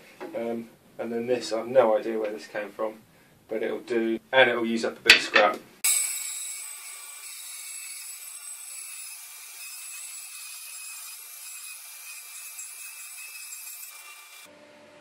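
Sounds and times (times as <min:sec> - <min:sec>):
bandsaw cutting wood: 0:05.8 - 0:14.5.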